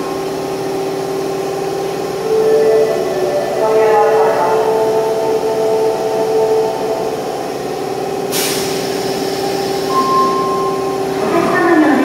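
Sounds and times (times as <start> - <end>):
train electrical hum: 0.0 - 12.0
air hiss: 8.3 - 10.1
high beep: 9.9 - 11.0.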